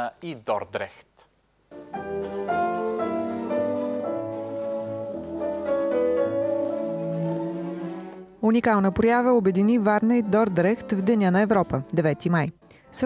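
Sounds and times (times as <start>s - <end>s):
orchestra and piano playing: 1.7s - 13.0s.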